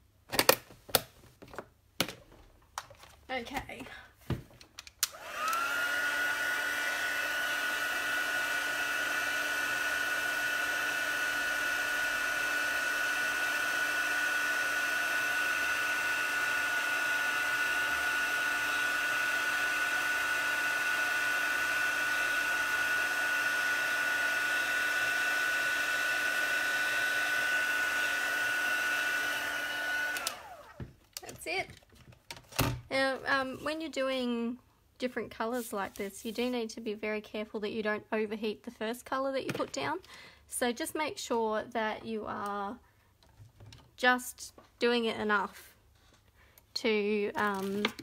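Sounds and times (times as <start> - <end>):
heat gun fan whine: 5.0 - 30.9.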